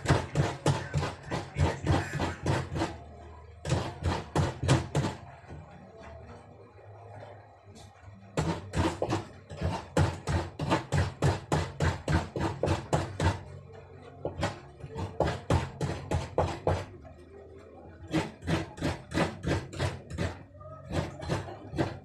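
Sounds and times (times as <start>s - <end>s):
coconut grater rasping: 0.0s - 3.0s.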